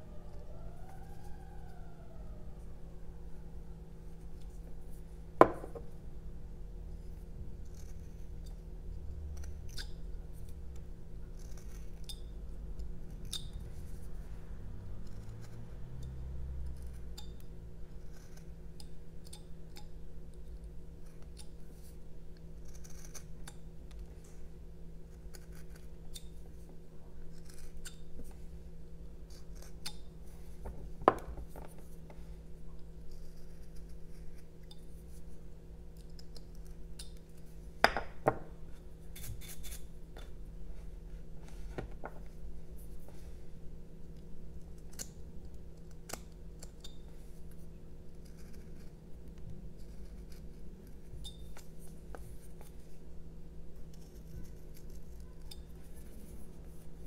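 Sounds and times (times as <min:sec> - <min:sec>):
carving knife scratching wood: 0:07.0 - 0:08.6, 0:11.3 - 0:12.1, 0:16.6 - 0:19.4, 0:22.6 - 0:23.6, 0:25.0 - 0:26.5, 0:27.3 - 0:28.0, 0:29.3 - 0:30.6, 0:33.1 - 0:35.4, 0:39.1 - 0:39.9, 0:45.8 - 0:49.0, 0:49.8 - 0:52.8, 0:53.8 - 0:57.0.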